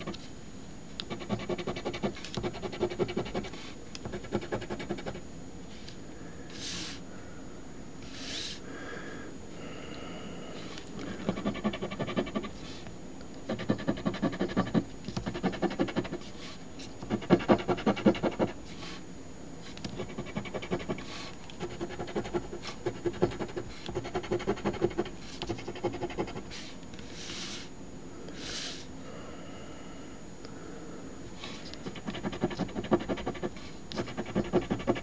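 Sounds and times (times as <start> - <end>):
coin scratching lottery ticket: 1.1 - 5.2, 11.3 - 12.5, 13.5 - 16.3, 17.1 - 18.6, 19.9 - 26.6, 31.8 - 35.0.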